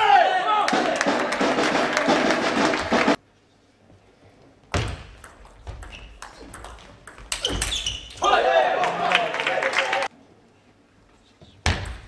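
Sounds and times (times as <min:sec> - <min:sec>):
crowd cheering and clapping: 0:00.5 - 0:03.2, 0:08.2 - 0:10.1.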